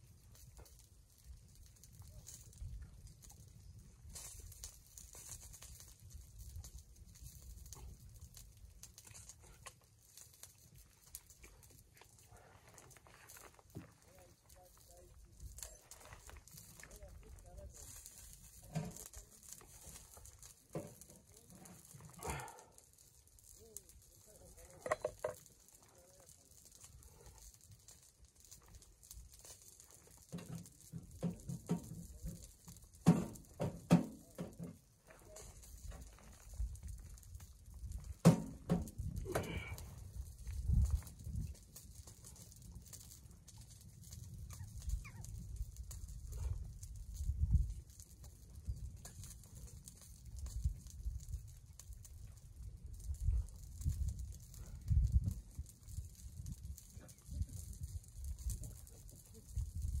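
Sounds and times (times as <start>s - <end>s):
soft ticks and crackles: 0.0s - 60.0s
wind rumble on microphone: 35.5s - 60.0s.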